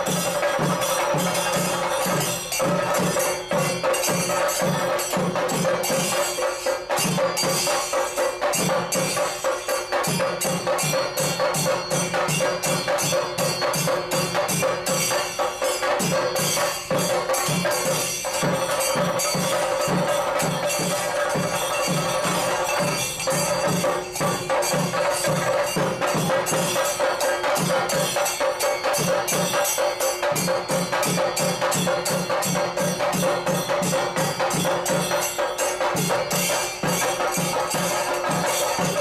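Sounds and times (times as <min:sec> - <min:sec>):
fast cymbal strikes: 0:00.0 - 0:39.0
rhythmic drum strokes: 0:00.0 - 0:39.0.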